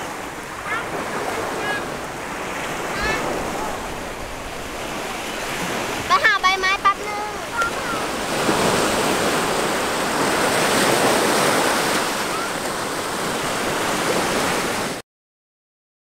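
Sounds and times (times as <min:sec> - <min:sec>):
waves breaking on a beach: 0:00.0 - 0:15.0.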